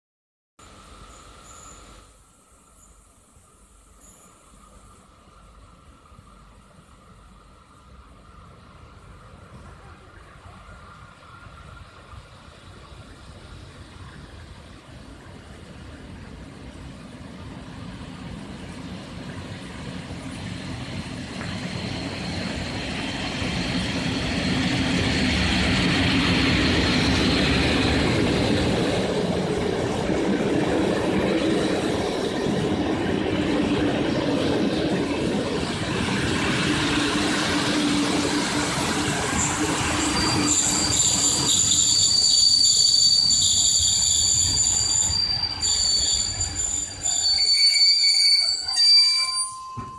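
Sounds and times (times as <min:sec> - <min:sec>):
train brakes squealing: 0:00.6 - 0:05.5, 0:19.4 - 0:29.0, 0:34.4 - 0:49.9
train wheels rumbling on rail: 0:00.6 - 0:49.9.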